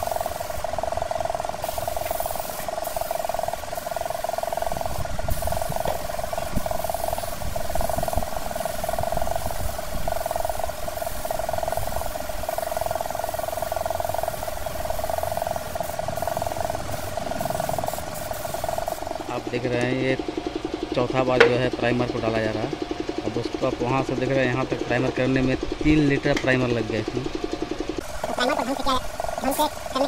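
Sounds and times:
spray-painting machine whine: 0.0s - 30.0s.

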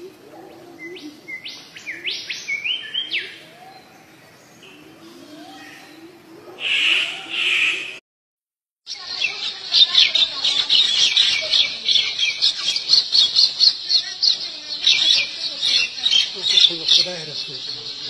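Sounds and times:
loud bird calls: 0.0s - 8.0s, 8.9s - 18.0s
rapid high bird chirps: 6.6s - 8.0s, 8.9s - 18.0s.

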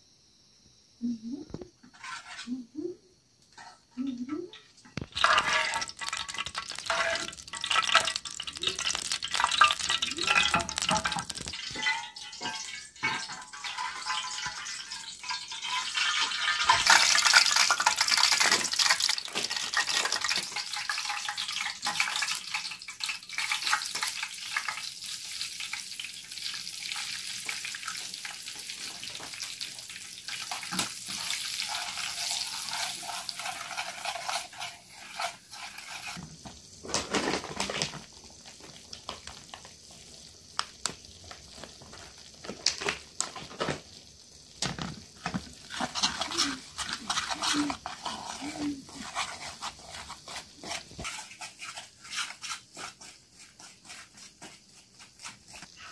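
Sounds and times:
metal spoon scraping a pan: 1.8s - 2.6s, 4.9s - 24.8s, 30.3s - 36.3s, 45.3s - 55.9s
fat sizzling in a frying pan: 3.2s - 55.9s.

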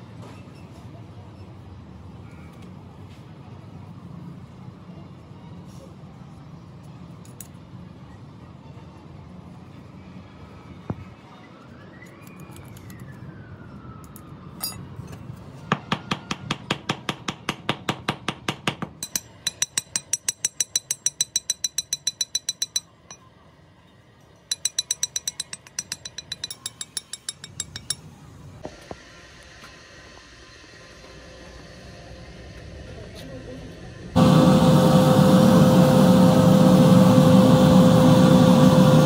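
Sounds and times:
rapid metal-on-metal tapping: 16.9s - 23.2s, 24.5s - 28.1s
faint whine: 32.6s - 39.0s
low steady hum: 34.2s - 39.0s.

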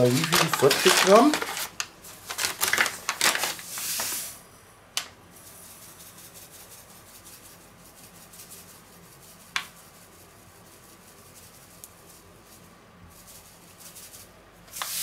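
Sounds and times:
sugar pouring into metal bowl: 0.0s - 1.6s
paper packet crinkling: 0.0s - 4.2s.

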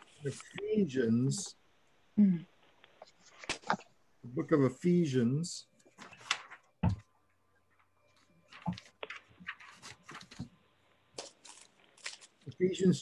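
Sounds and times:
pages being turned: 3.0s - 3.9s, 5.9s - 6.7s, 8.2s - 10.6s, 11.2s - 12.5s.

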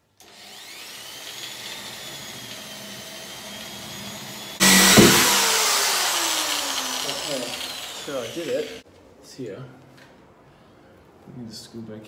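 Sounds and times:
electric drill boring into wall: 0.2s - 8.8s.

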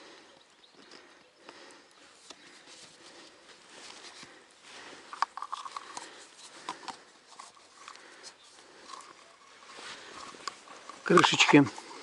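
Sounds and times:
small hard objects clicking: 5.1s - 9.2s, 10.1s - 11.8s.

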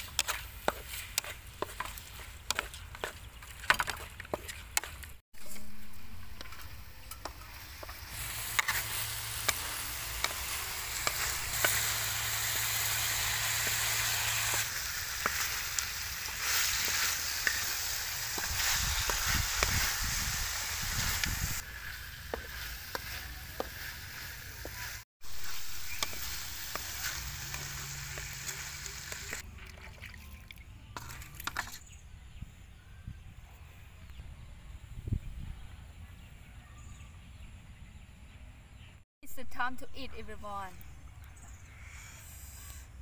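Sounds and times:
wooden spatula scraping a pan: 0.0s - 5.6s, 21.0s - 29.4s
frog meat sizzling in a wok: 5.4s - 29.4s.

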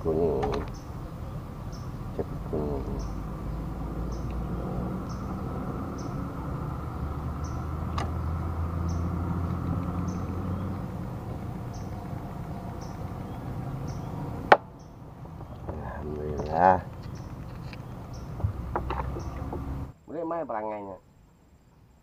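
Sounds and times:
steady low rumble: 0.0s - 20.0s
clicks: 0.4s - 0.8s.

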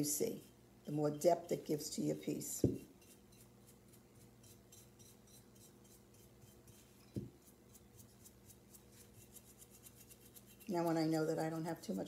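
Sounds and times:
paintbrush bristles scratching: 2.8s - 12.0s.

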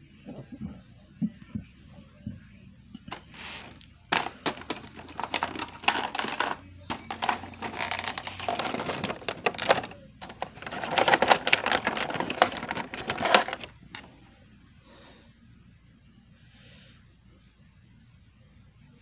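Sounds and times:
plastic packaging crinkling: 3.1s - 14.1s.

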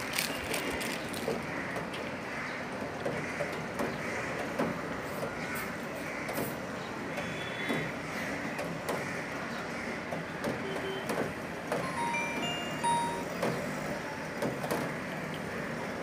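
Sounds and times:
steady background noise: 0.0s - 16.0s
phone start-up beeps: 11.8s - 13.5s.

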